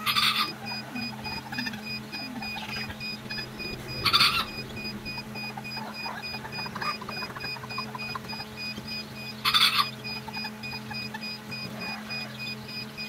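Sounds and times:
chick cheeping: 0.0 - 13.0
low hum: 0.6 - 7.5.

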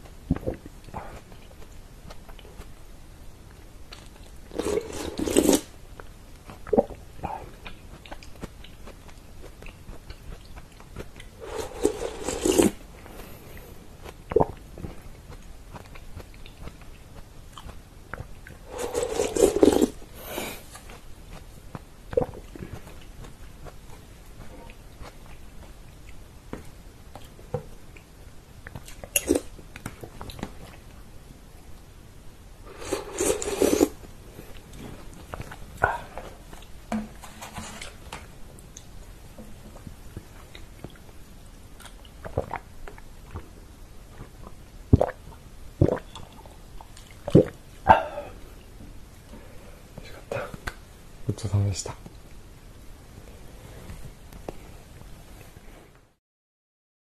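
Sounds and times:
quiet chewing: 3.5 - 31.0, 32.7 - 41.2.

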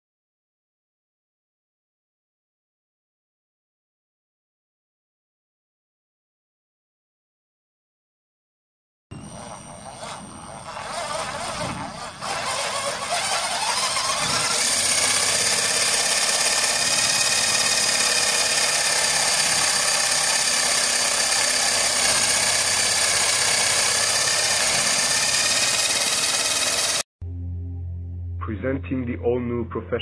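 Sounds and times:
drill motor whine: 9.1 - 27.1
drill bit boring into wood: 9.2 - 27.1.

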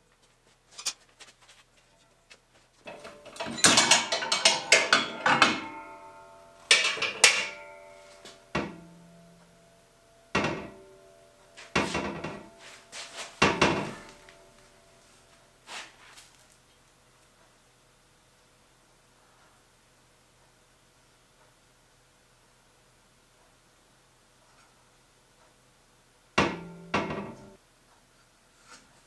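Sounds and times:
steel saw blade clanking: 2.9 - 9.5
metallic ringing: 2.9 - 15.0, 26.4 - 27.6.

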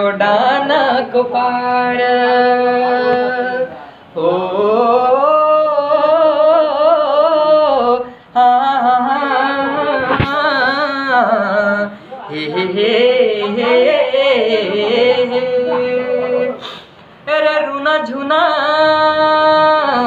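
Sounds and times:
man singing folk song: 4.3 - 16.6
man breathing: 16.5 - 17.1.

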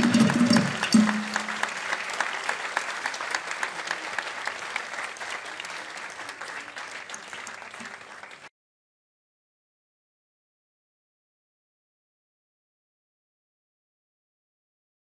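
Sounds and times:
audience clapping: 0.0 - 8.5.

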